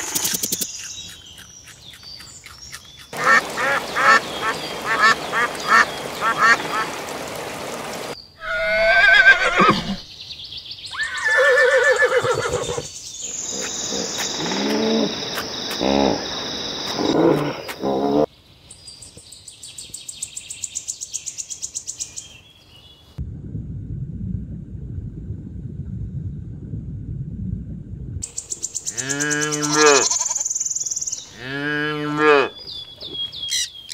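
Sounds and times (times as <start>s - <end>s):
high bird chirping: 0.2s - 6.8s, 32.6s - 33.9s
pitched animal call: 8.4s - 10.0s, 28.9s - 30.4s
wavering neigh-like animal call: 8.4s - 10.0s.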